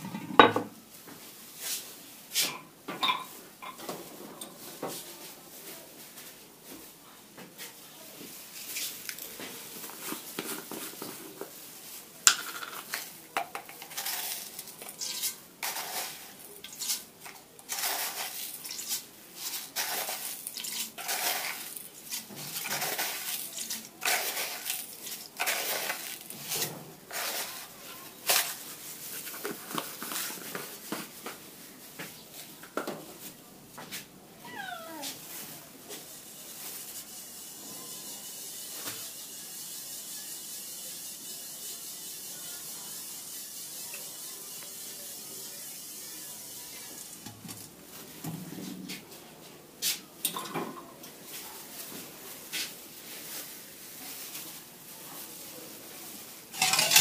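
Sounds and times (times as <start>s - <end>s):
gloved hands crumbling bread: 8.4s - 12.2s, 12.8s - 32.2s
crumbs falling into bowl: 8.7s - 11.6s, 12.2s - 31.4s, 56.5s - 57.0s.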